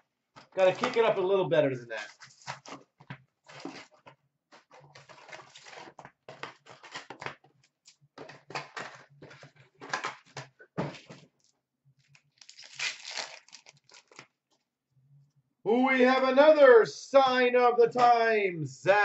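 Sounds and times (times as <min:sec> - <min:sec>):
card packs rustling and tapping: 0:00.4 - 0:01.2, 0:02.0 - 0:11.4.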